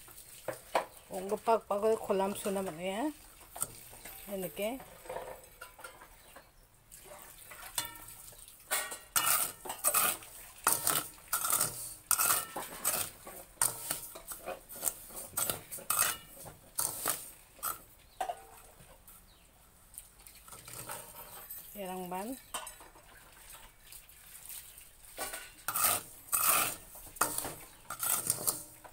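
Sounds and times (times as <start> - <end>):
skimmer scraping sand in a wok: 8.7 - 17.9, 24.6 - 28.9.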